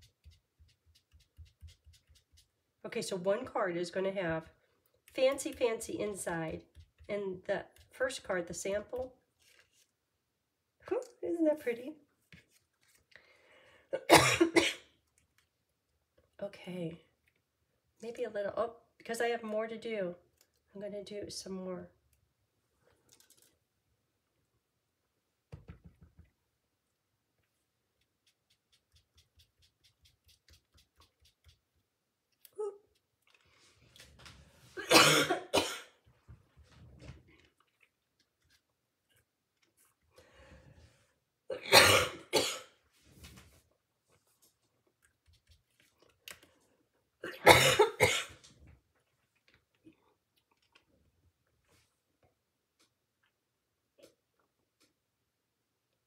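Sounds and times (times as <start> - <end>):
woman coughing: 14.0 - 14.9, 34.8 - 35.9, 41.5 - 42.7, 47.2 - 48.4.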